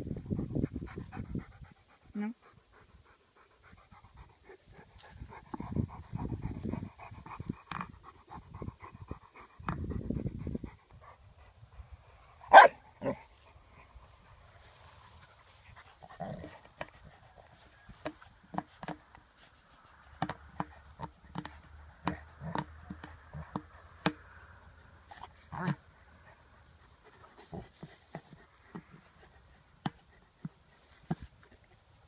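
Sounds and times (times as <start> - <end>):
dog panting hard: 0.2 - 12.5, 13.6 - 17.6, 25.1 - 32.0
rustling and scraping: 13.0 - 24.4, 25.0 - 31.9.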